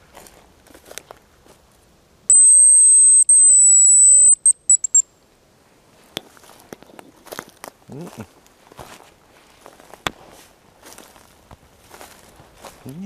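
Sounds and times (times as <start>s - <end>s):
high decoy whistle: 2.3s - 5.0s.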